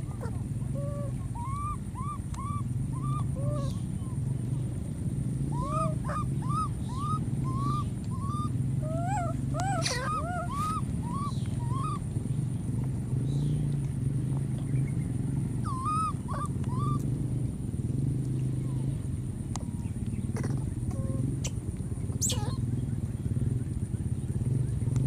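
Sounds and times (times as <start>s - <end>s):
infant monkey crying: 0.0s - 4.2s, 5.4s - 12.1s, 15.6s - 17.0s, 20.4s - 21.6s, 22.2s - 22.6s.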